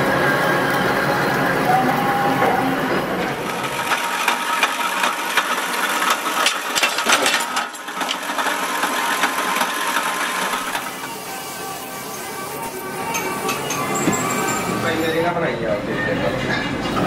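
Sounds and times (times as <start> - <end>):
press running: 0.0 - 15.0
metal lathe turning: 2.9 - 15.4.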